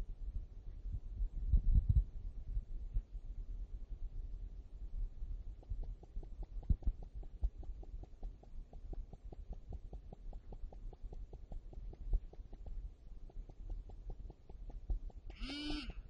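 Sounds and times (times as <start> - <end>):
rapid even ticking: 5.6 - 16.0.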